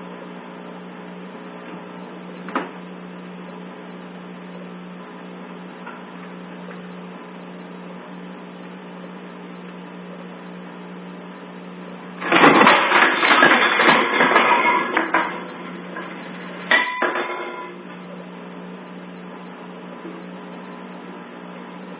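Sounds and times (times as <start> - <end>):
kitchen objects clattering: 12.2 - 17.8.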